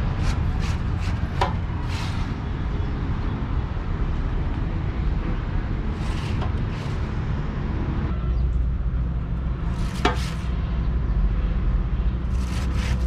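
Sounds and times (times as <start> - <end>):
hissing scrapes: 0.1 - 2.4, 5.9 - 7.2, 9.8 - 10.5, 12.3 - 13.0.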